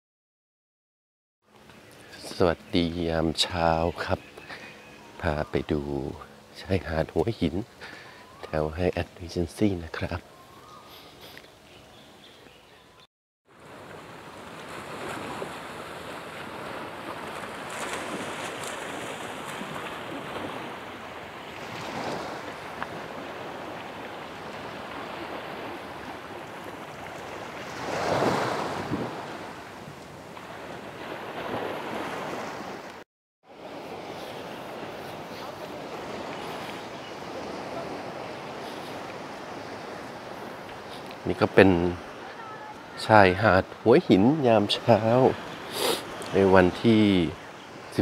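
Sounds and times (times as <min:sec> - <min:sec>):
waves washing onto sandy beach: 0:13.5 - 0:48.0.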